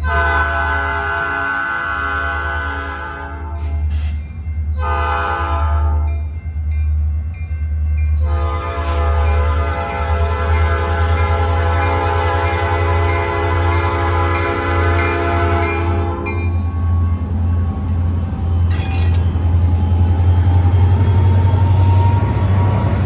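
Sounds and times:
locomotive air horn: 0.0s - 4.0s, 4.8s - 6.1s, 8.2s - 17.0s
diesel locomotive rumble: 0.0s - 23.0s.

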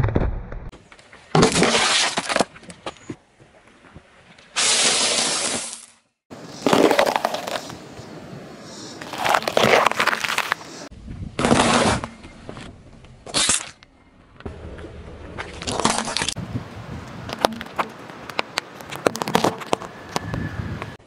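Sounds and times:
tyre crunching objects on asphalt: 6.5s - 7.8s, 9.0s - 13.7s, 17.3s - 20.3s.

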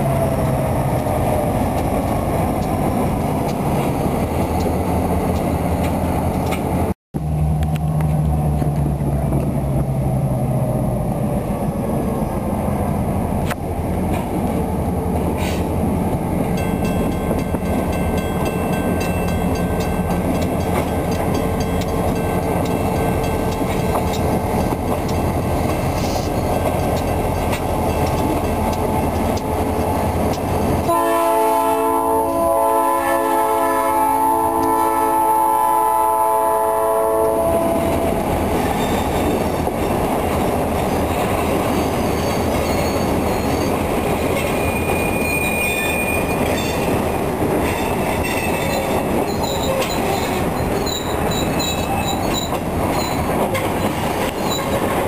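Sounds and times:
locomotives running: 0.1s - 31.0s
wheels squealing on rails: 15.2s - 15.9s, 16.5s - 32.9s, 37.2s - 55.0s.

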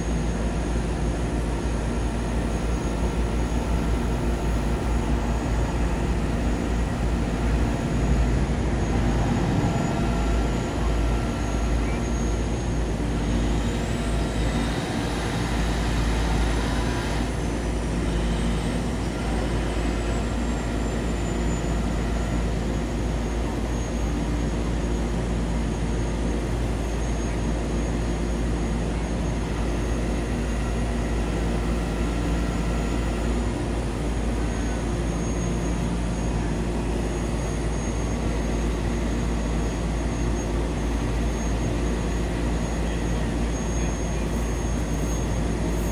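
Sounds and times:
diesel engine running: 0.0s - 23.6s
high whine: 0.0s - 25.3s.

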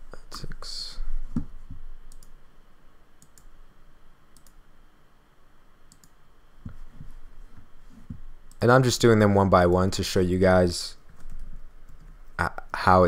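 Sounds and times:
computer mouse clicking: 2.1s - 2.4s, 3.2s - 3.5s, 4.4s - 4.6s, 5.9s - 6.2s, 11.1s - 12.2s.

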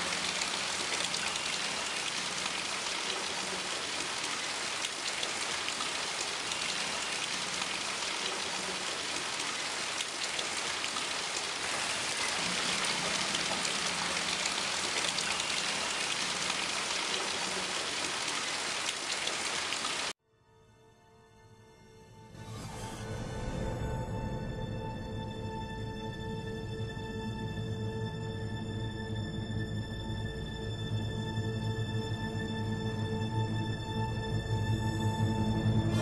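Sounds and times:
rain falling on leaves: 0.0s - 20.1s.

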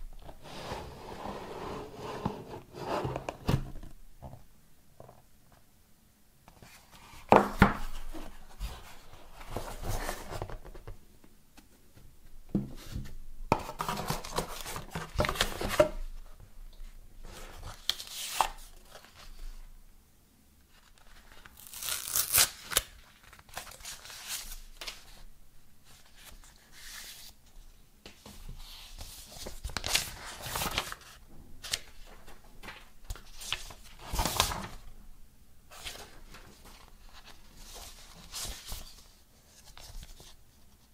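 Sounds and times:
paper rustling and crinkling: 28.2s - 34.9s, 35.7s - 40.4s.

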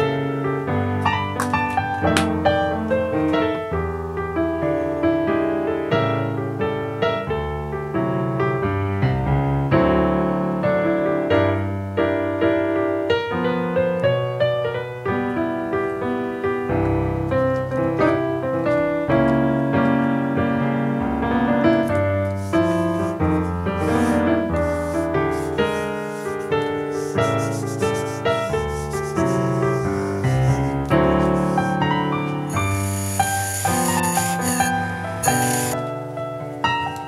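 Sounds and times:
solo piano music: 0.0s - 37.0s
paper rubbing on board: 22.3s - 31.8s, 32.5s - 35.8s.

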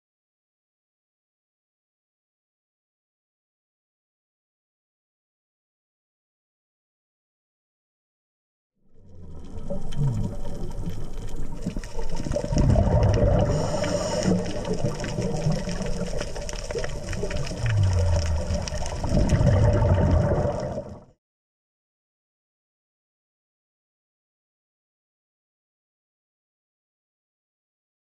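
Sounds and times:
crackle of fine clicks: 9.0s - 21.0s
exhaled bubbles rushing: 9.0s - 21.2s
diver breathing through regulator: 12.8s - 15.3s.

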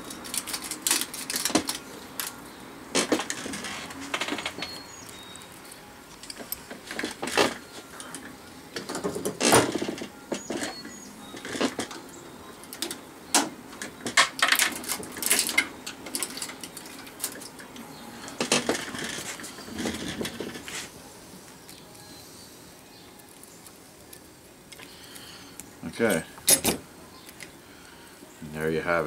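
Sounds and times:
metallic clinks and scrapes: 26.1s - 26.8s.

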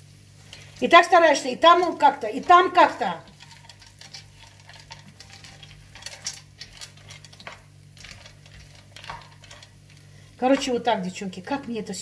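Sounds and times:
steady low hum: 0.0s - 12.0s
kitchenware clinking and scraping: 1.7s - 10.8s.

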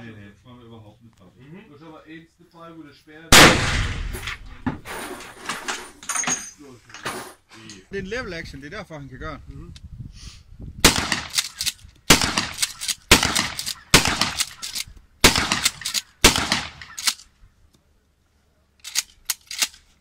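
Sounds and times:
shotgun shots: 3.3s - 4.6s, 10.8s - 17.2s.

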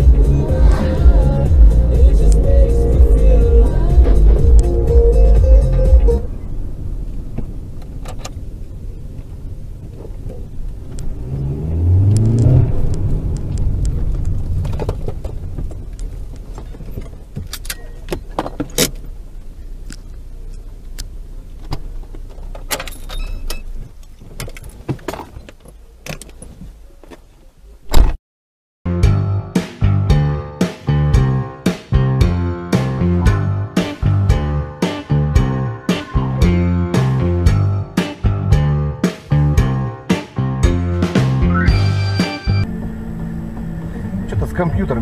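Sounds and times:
car engine from inside cabin: 0.0s - 24.2s, 42.6s - 45.0s.

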